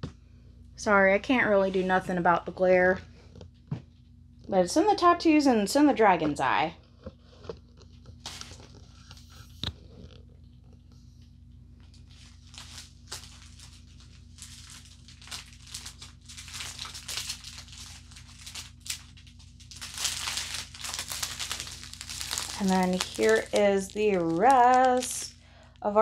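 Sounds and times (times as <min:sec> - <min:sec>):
faint low hum: 0:00.0 - 0:26.0
plastic packaging crinkling: 0:07.6 - 0:10.9, 0:11.8 - 0:25.8.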